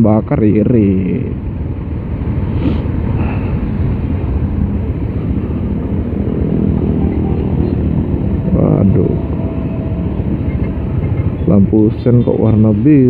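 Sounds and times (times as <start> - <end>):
motorcycle engine running: 3.8 - 11.7.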